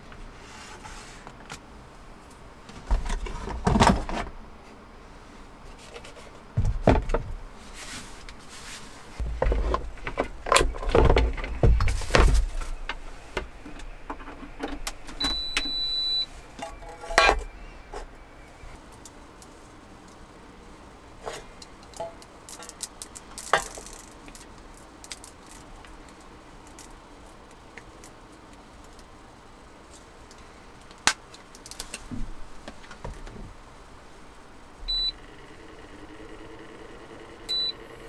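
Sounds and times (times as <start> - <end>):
clunks and knocks of handling: 6.5 - 7.4, 9.2 - 15.4
electronic beep: 15.2 - 16.3, 34.9 - 35.2, 37.5 - 38.0.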